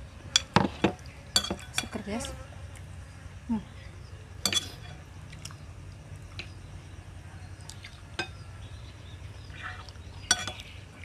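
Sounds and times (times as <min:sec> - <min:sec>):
faint low hum: 0:00.0 - 0:11.0
spoons clinking on plates: 0:01.4 - 0:02.0, 0:04.4 - 0:05.0, 0:10.3 - 0:10.7.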